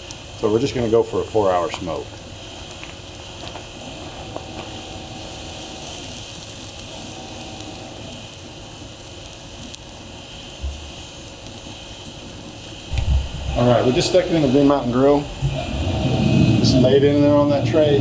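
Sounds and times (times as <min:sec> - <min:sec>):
meat sizzling on a grill: 0:00.0 - 0:18.0
wood fire crackling: 0:00.0 - 0:18.0
low bump: 0:12.9 - 0:17.0.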